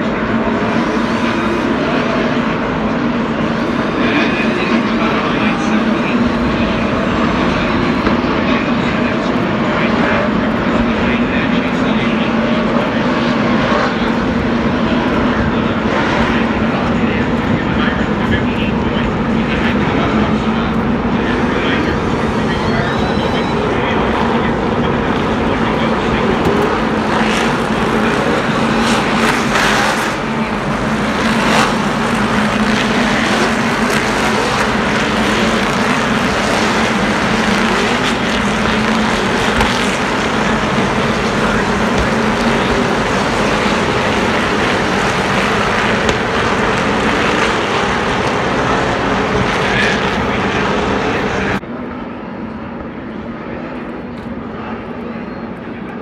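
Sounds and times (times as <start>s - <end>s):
race cars droning in a pack: 0.0s - 56.0s
cars passing by: 19.1s - 51.6s.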